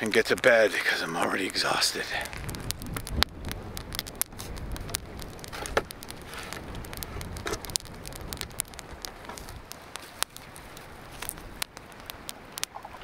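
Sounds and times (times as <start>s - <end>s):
low rumble: 2.2s - 9.6s.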